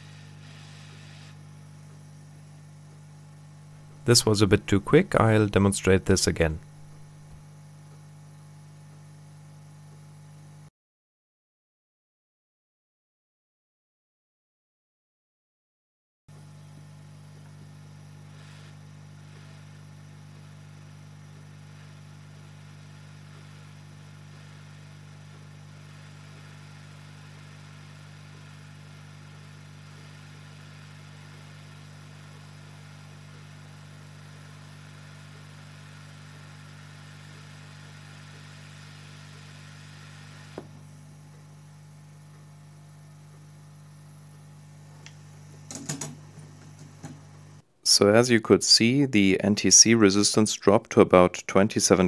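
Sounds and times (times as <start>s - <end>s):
hot-air blower whirring: 0.0s - 7.4s, 16.4s - 47.7s.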